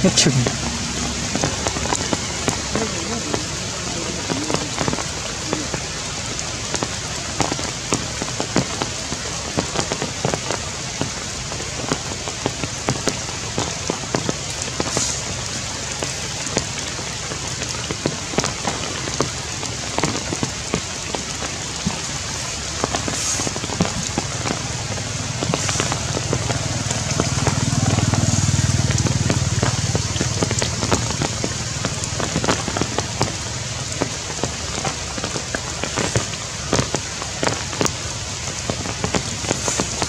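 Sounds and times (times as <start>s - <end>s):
drops striking leaves: 0.0s - 40.0s
heavy rain hissing: 0.0s - 40.0s.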